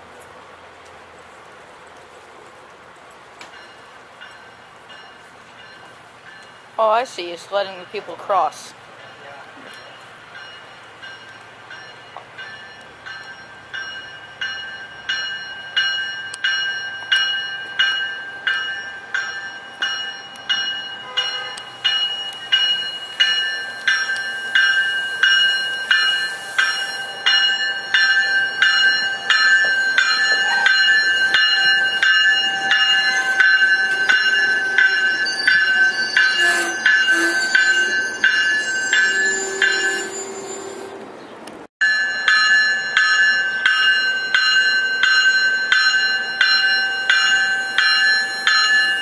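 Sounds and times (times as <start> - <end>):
train running noise: 2.8 - 49.0
crossing warning bell ringing: 3.5 - 41.0, 41.8 - 49.0
thin wheel squeal: 34.6 - 41.0.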